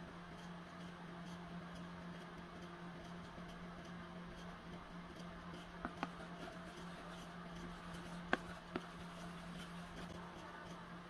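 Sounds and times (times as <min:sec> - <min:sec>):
steady low hum: 0:00.0 - 0:11.0
stirring stick knocking on plastic tub: 0:05.8 - 0:10.0.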